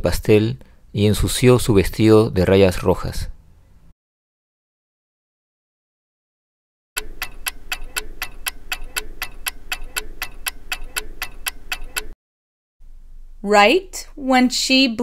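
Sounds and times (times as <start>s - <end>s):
clock ticking: 7.0s - 12.2s.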